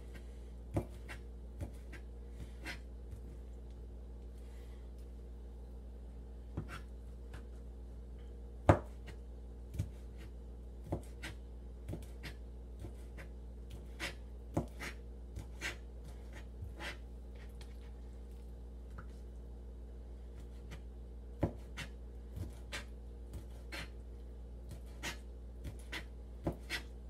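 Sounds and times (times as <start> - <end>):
steady low hum: 0.0 - 27.0
knife chopping on plastic board: 0.7 - 3.3, 6.5 - 7.6, 8.6 - 17.0, 21.4 - 24.0, 24.7 - 26.9.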